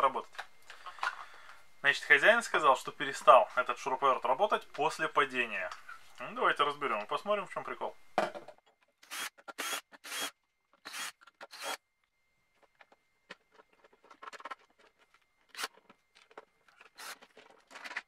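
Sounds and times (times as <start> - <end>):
screwdriver squeaking screws: 9.0 - 11.8, 16.8 - 17.8.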